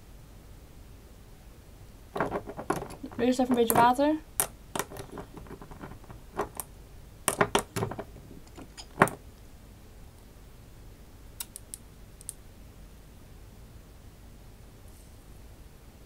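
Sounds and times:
bottle and cap clicking: 0:07.3 - 0:09.2.

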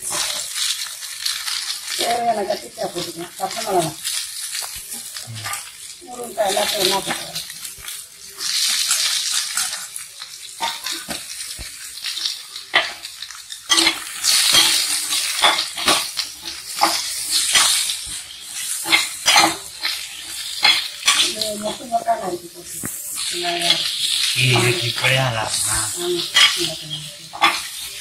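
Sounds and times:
vegetables sizzling in hot oil: 0:00.0 - 0:28.0.

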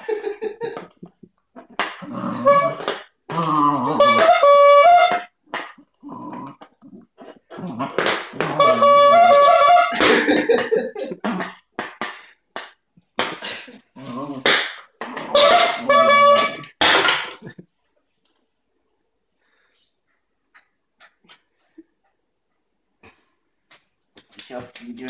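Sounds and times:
squeeze horn honking: 0:02.4 - 0:02.9, 0:03.9 - 0:05.4, 0:08.6 - 0:10.5, 0:15.3 - 0:16.8.

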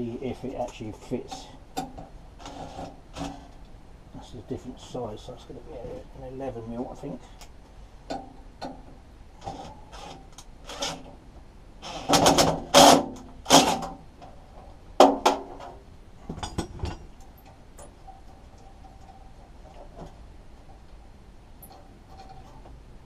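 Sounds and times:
parts clicking and knocking: 0:11.8 - 0:22.9.

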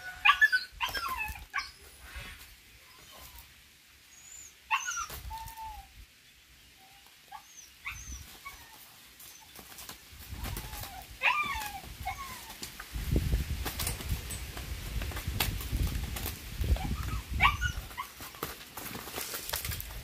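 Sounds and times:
animal whimpering cries: 0:00.0 - 0:03.5, 0:04.1 - 0:05.9, 0:06.8 - 0:09.6, 0:10.3 - 0:12.6, 0:16.7 - 0:18.3
roosters scuffling wings: 0:00.0 - 0:03.6, 0:05.0 - 0:05.8, 0:08.1 - 0:20.0.

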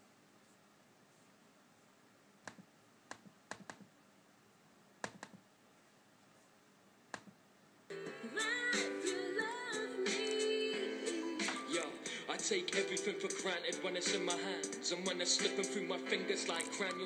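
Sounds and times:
loud music from laptop: 0:07.9 - 0:17.0.

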